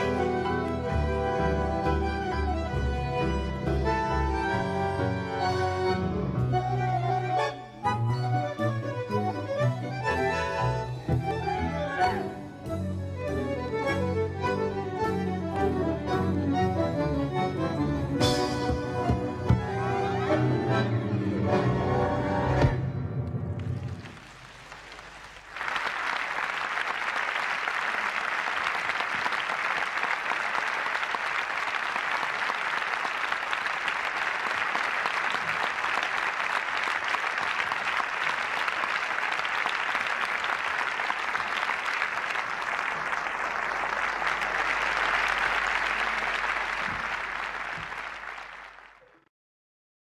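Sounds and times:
audience applause: 0.0s - 2.5s, 23.6s - 49.2s.

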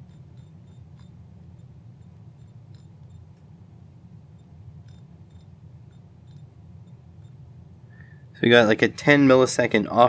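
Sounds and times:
dial clicking ticks: 0.0s - 3.5s, 4.3s - 7.4s
low steady hum: 0.0s - 10.0s.

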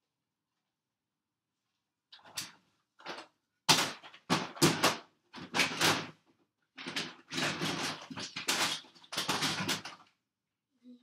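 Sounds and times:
hard objects knocking and scraping: 2.2s - 6.2s, 6.8s - 10.1s.

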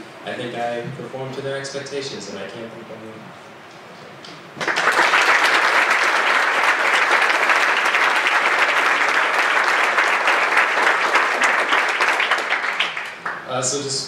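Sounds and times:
audience applauding: 4.6s - 13.5s.

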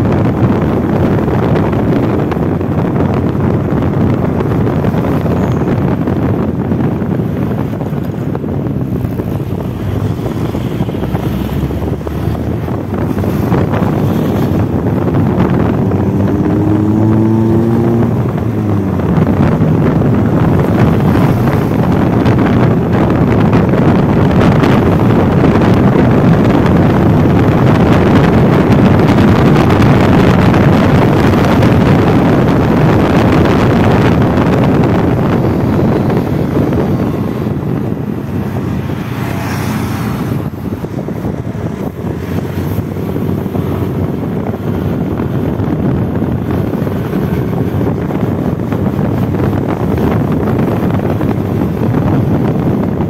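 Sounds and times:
motorcycle engine: 0.0s - 53.0s
road noise: 0.0s - 53.0s
wind buffeting microphone: 0.0s - 53.0s.

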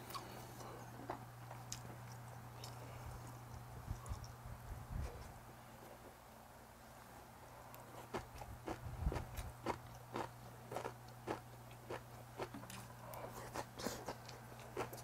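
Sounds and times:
steady low hum: 0.0s - 15.0s
person chewing with mouth open: 7.7s - 15.0s.

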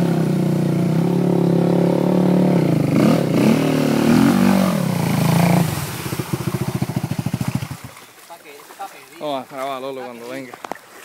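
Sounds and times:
atv engine revving: 0.0s - 7.9s
water spraying: 2.9s - 9.4s.

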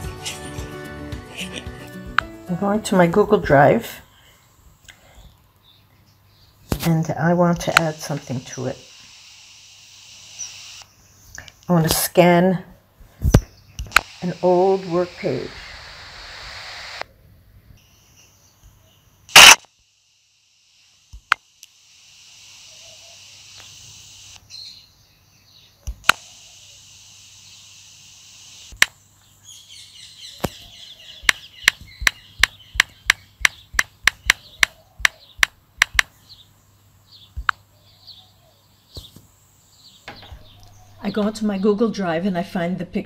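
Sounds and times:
faint hiss: 3.3s - 41.6s
camera shutter click: 13.8s - 14.1s, 19.3s - 19.7s, 26.0s - 26.4s
tapping on phone screen: 31.2s - 36.1s.

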